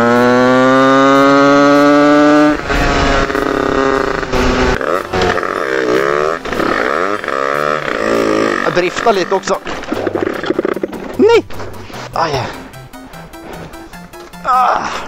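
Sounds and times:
go-kart engine revving: 0:00.0 - 0:11.3.

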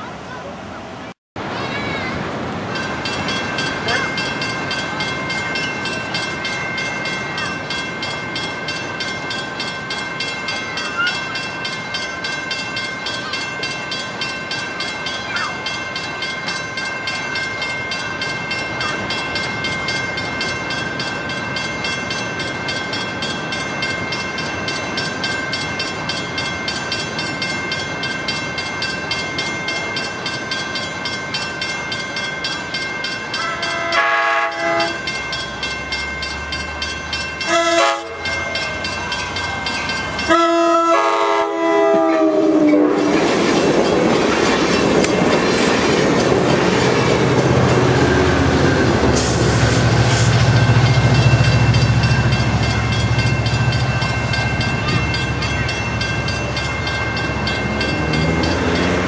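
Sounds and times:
low rumble of train: 0:00.0 - 0:59.0
railroad crossing bell ringing: 0:01.6 - 0:59.0
train horn blasts: 0:33.4 - 0:35.1, 0:37.4 - 0:38.4, 0:40.2 - 0:43.1.

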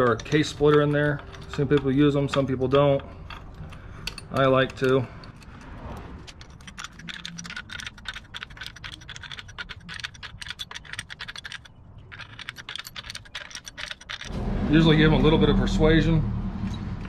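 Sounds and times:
wrench clicking on a nut: 0:06.3 - 0:14.3.

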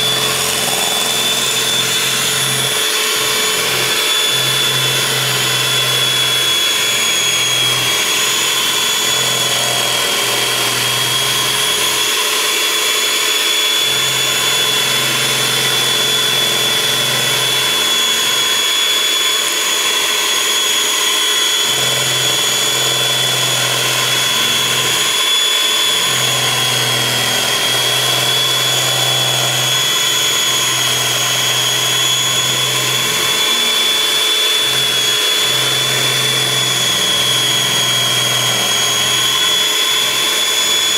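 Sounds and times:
electric hand mixer whining: 0:00.0 - 0:40.9.

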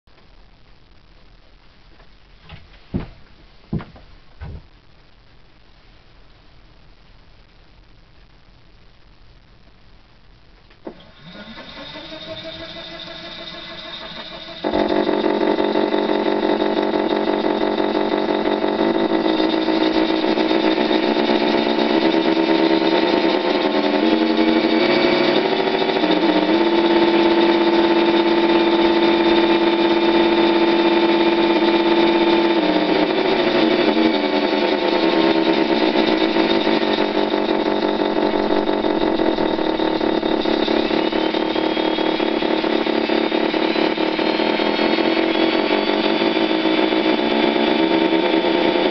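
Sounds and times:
simulated engine through small speaker: 0:10.9 - 0:48.9.

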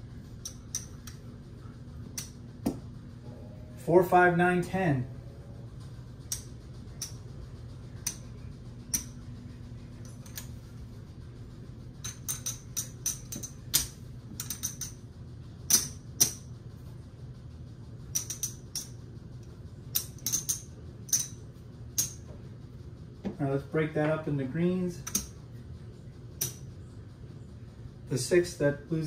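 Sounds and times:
steady low hum: 0:00.0 - 0:29.0
casino chips clacking: 0:12.0 - 0:15.0, 0:15.7 - 0:16.4, 0:18.1 - 0:18.9, 0:19.9 - 0:21.4.

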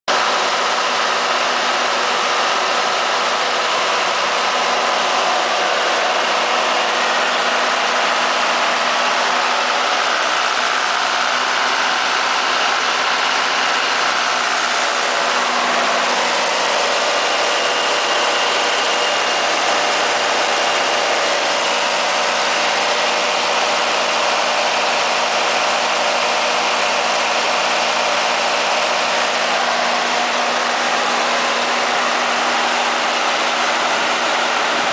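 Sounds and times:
diesel generator running: 0:00.1 - 0:34.9.

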